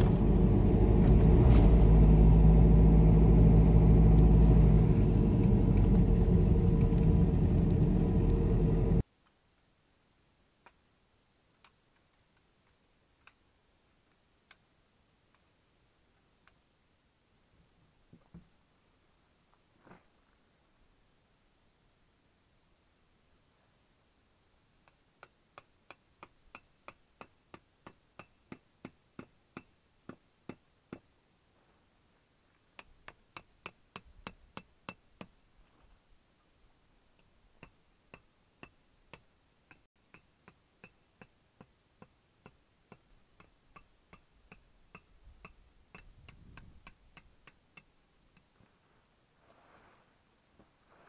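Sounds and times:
tent pegs being hammered: 24.9 - 31.1, 32.8 - 35.4, 37.6 - 48.5.

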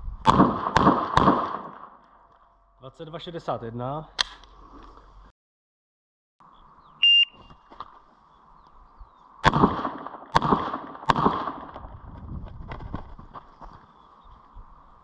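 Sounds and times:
pistol shots: 0.3 - 2.0, 9.4 - 11.8.

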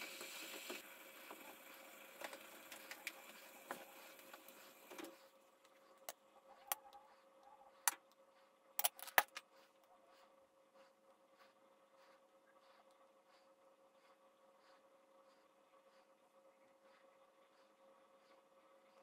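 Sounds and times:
cream being spread: 0.0 - 6.0.

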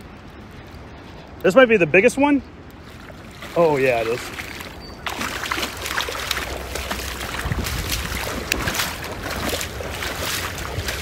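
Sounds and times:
wind rumbling on microphone: 0.0 - 11.0
fish splashing at water surface: 2.8 - 11.0.

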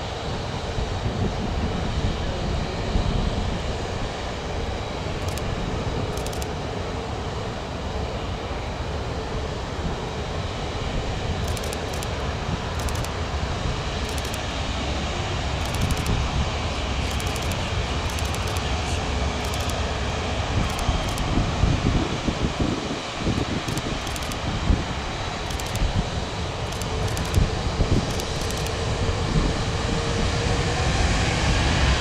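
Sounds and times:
jet engines rumbling: 0.0 - 32.0.

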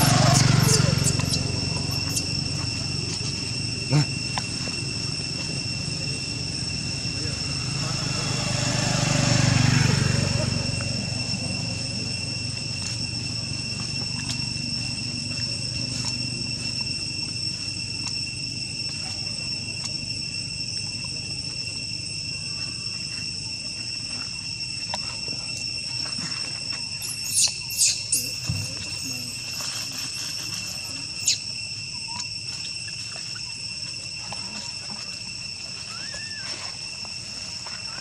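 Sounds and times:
high-pitched squeaks: 0.0 - 4.2, 25.0 - 32.7
insects droning: 0.0 - 38.0.

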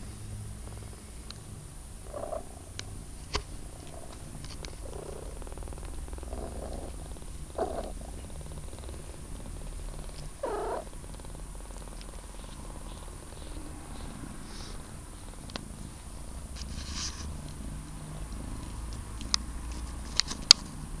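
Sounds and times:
kitten purring: 0.0 - 21.0
kitten mewing: 2.0 - 2.6, 3.8 - 9.3, 10.0 - 14.8.

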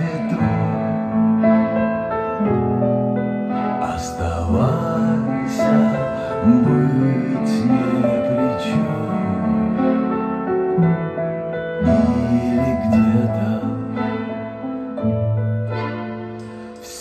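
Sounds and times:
slow music from vinyl record: 11.8 - 14.7, 15.6 - 17.0.

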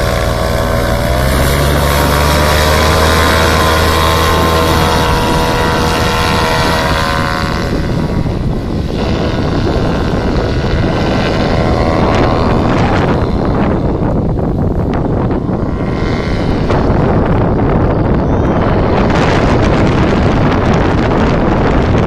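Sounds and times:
engine and propeller at full power: 0.0 - 22.0
wind buffeting microphone: 0.0 - 22.0.

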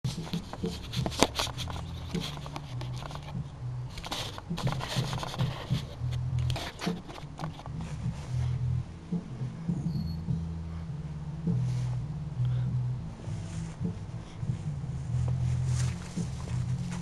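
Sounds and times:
low hum: 0.1 - 17.0
camera handling scrapes and knocks: 0.2 - 3.3, 4.0 - 7.8.

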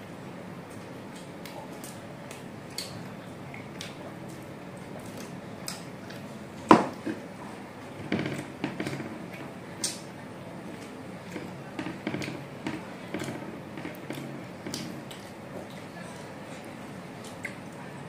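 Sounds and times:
fingers clicking on a plate: 10.7 - 15.4.

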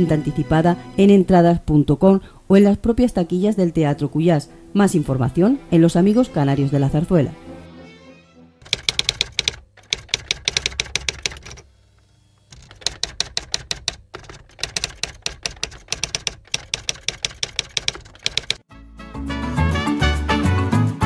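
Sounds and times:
typewriter keys clacking: 8.6 - 11.6, 12.5 - 18.6.

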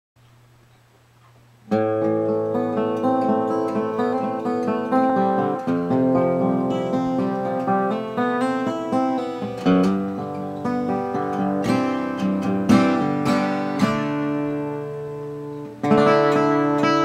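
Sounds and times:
faint low hum: 0.2 - 8.4
acoustic guitar playing: 1.2 - 17.0.

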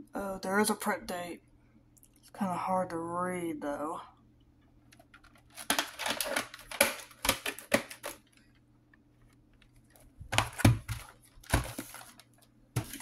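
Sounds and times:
plastic cassettes clicking and rustling: 4.9 - 8.6, 9.6 - 13.0.

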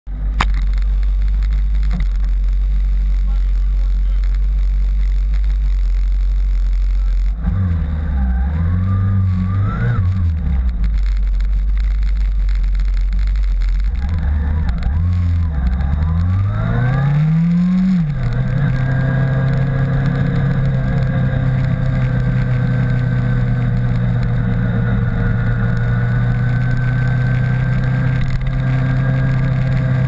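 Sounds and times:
motorcycle pulling away: 7.4 - 11.2, 13.8 - 30.0.

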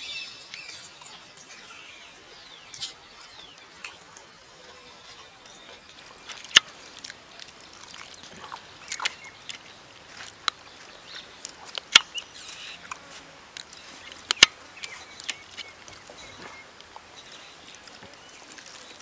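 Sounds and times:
chewing and lip-smacking: 2.8 - 19.0.

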